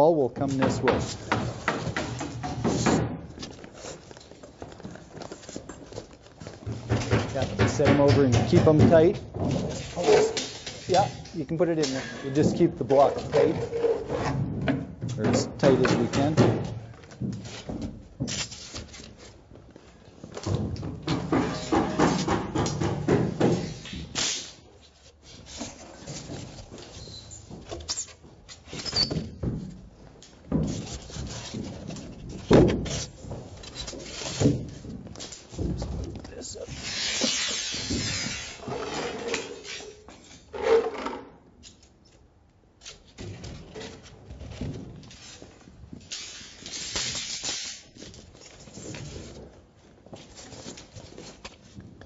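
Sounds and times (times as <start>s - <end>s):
foam blocks rubbing: 0.4s - 14.6s, 15.6s - 41.0s
knocks and rustling: 0.4s - 41.9s, 42.9s - 52.0s.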